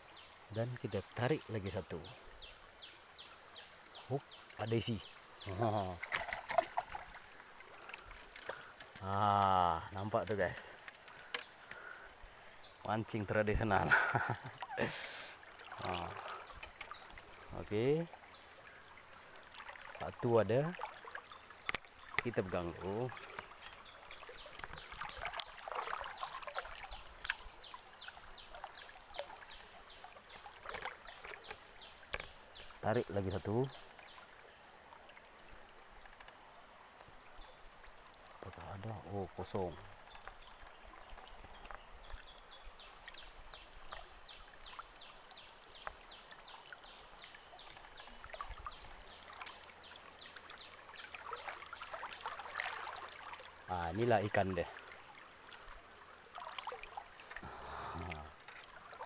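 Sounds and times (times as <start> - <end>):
trickle of running water: 0.0 - 59.0
dry bamboo crackling: 5.5 - 12.0, 13.5 - 17.5, 20.7 - 27.4.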